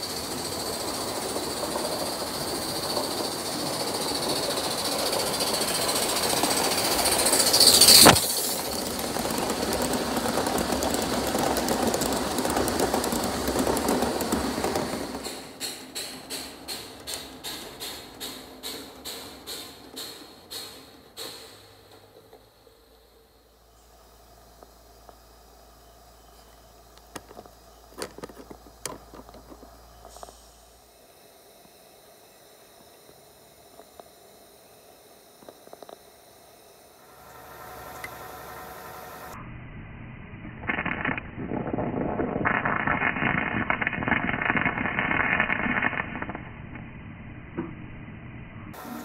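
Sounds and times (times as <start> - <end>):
steam locomotive hissing: 0.0 - 35.8, 36.5 - 39.4, 48.8 - 49.0
small clicks and crackles: 26.9 - 30.4, 40.6 - 46.8.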